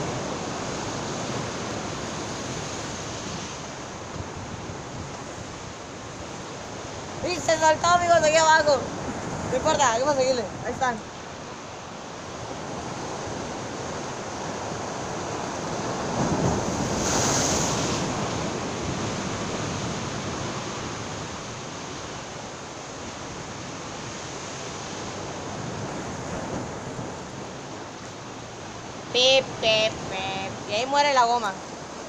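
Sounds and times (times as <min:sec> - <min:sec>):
wind buffeting microphone: 0:00.0 - 0:11.5
sea surf washing against rocks: 0:00.0 - 0:32.0.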